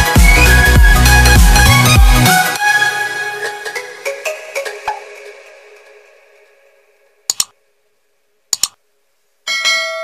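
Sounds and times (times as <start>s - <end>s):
electronic background music: 0.0s - 6.7s, 7.3s - 7.5s.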